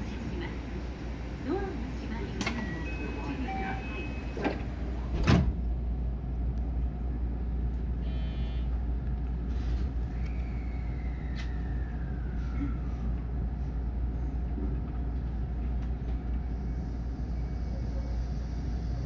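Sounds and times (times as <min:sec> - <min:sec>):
train rumble: 0:00.0 - 0:19.0.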